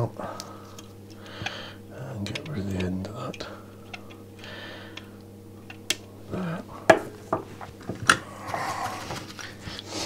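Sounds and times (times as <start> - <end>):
side cutters snipping wire: 2.2 - 4.2.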